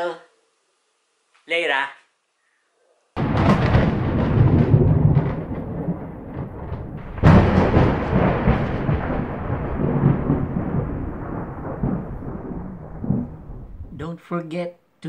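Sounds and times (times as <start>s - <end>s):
thunder crack: 3.2s - 14.0s
thunder rumbling: 3.2s - 14.0s.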